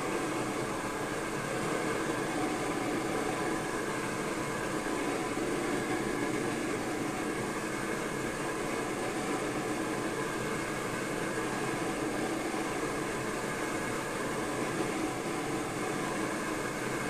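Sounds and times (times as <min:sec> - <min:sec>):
stove burner flame hissing: 0:00.0 - 0:17.0.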